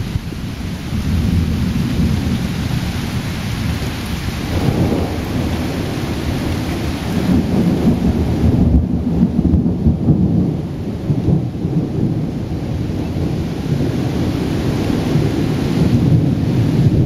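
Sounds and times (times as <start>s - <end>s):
rain falling: 0.0s - 17.0s
thunder rumbling: 0.0s - 17.0s.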